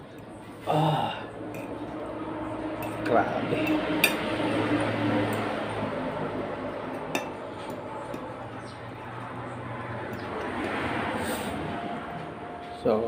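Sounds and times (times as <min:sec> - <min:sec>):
steady low hum: 0:00.0 - 0:13.0
fork scraping a plate: 0:02.7 - 0:04.7.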